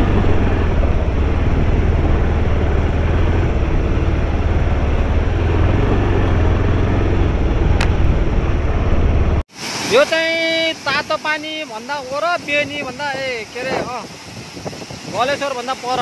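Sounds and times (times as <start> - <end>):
motorcycle engine rumbling: 0.0 - 9.5.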